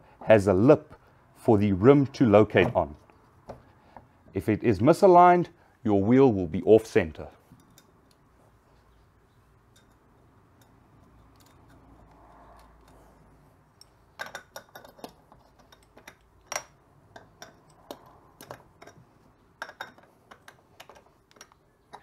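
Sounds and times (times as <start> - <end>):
light metallic clicks and ticks: 9.7 - 19.0.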